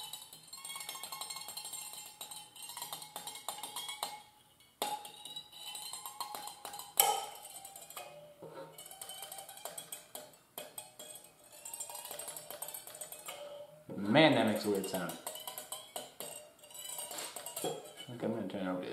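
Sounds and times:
rasp scraping fishing line: 0:16.6 - 0:18.1.

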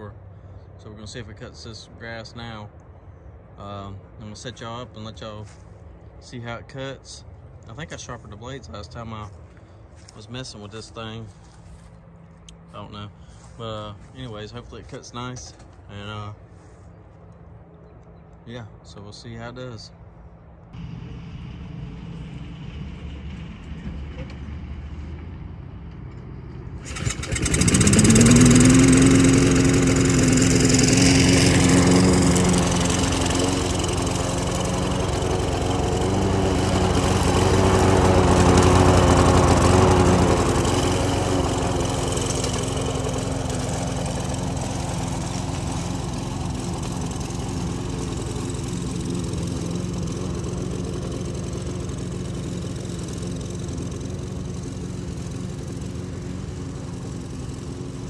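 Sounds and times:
push mower engine running: 0:09.0 - 0:15.9, 0:26.2 - 0:58.0.

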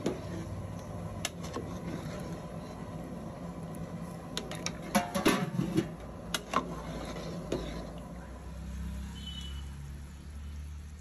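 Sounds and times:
metal ladle scraping cooking pot: 0:00.0 - 0:03.2, 0:04.0 - 0:08.2.

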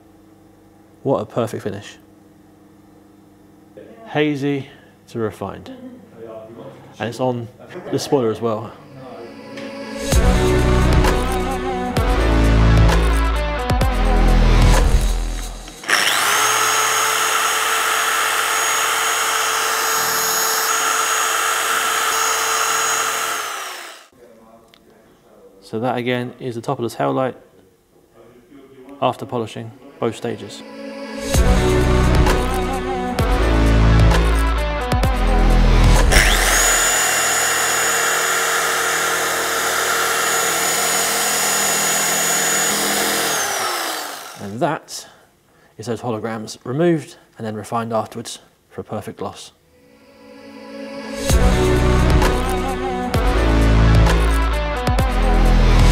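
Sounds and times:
polisher hum with whistle: 0:15.8 - 0:24.1, 0:36.1 - 0:44.4.

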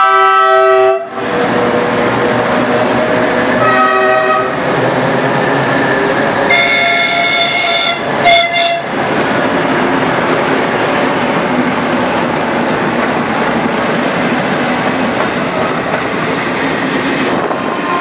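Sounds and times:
locomotive horn: 0:00.0 - 0:01.2, 0:03.6 - 0:04.6, 0:06.5 - 0:09.0, 0:17.8 - 0:18.0
train wheels rumbling on rail: 0:00.0 - 0:18.0.

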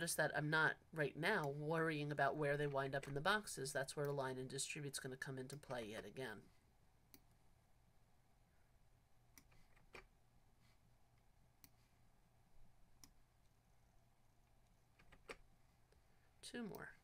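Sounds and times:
low steady hum: 0:00.0 - 0:17.0
computer mouse clicks: 0:09.3 - 0:10.1, 0:13.0 - 0:13.6.

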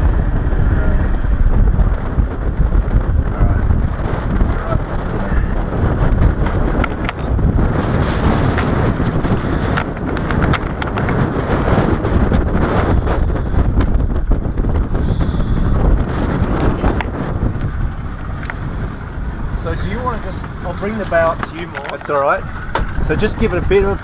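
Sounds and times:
low rumble: 0:00.0 - 0:24.0
wind buffeting microphone: 0:00.0 - 0:24.0
light clicks and knocks: 0:20.4 - 0:23.0.

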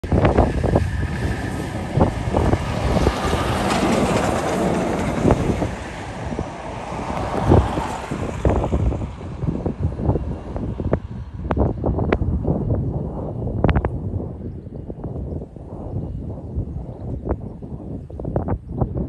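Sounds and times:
truck passing: 0:00.0 - 0:13.5
wind buffeting microphone: 0:00.0 - 0:19.0.

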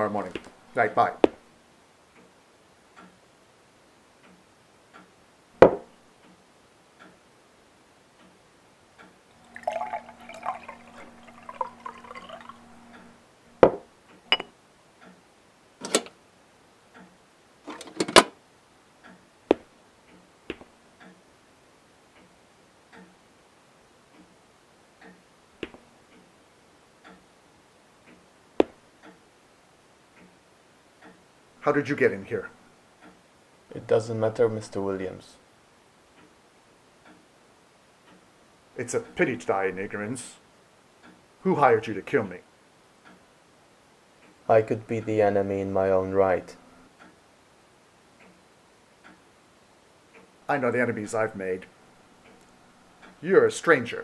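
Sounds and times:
clock ticking: 0:09.0 - 0:14.4, 0:16.9 - 0:17.9
liquor pouring into glass: 0:09.3 - 0:13.8
glass decanters clinking: 0:09.4 - 0:13.1, 0:14.3 - 0:14.5.

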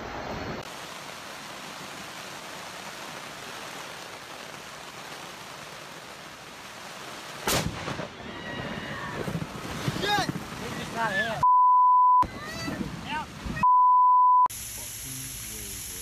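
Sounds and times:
storm wind and rain: 0:00.0 - 0:11.4, 0:12.2 - 0:13.6
loud sudden crack: 0:07.4 - 0:08.2.

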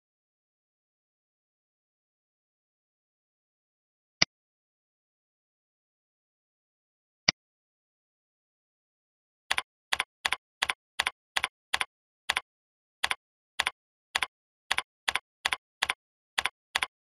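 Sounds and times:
computer keyboard typing: 0:09.5 - 0:12.4, 0:13.0 - 0:17.0.

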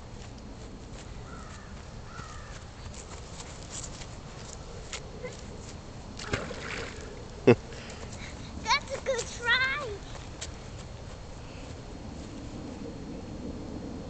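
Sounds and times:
bird calling faintly: 0:01.2 - 0:02.6.

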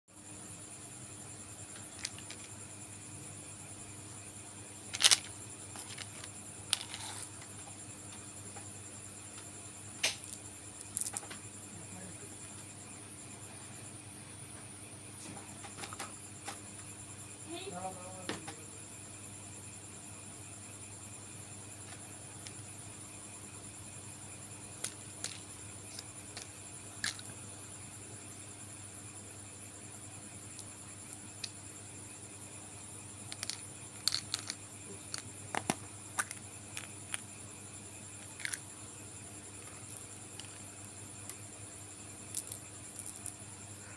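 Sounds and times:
crickets chirping: 0:00.1 - 0:43.9
candy packets rustling: 0:01.8 - 0:02.6, 0:04.8 - 0:07.4, 0:33.3 - 0:37.0.

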